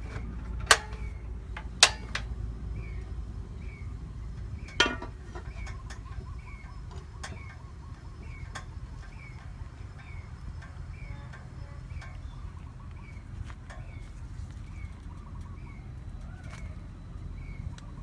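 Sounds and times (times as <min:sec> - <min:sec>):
metal lid clanking onto pot: 0:04.7 - 0:06.1.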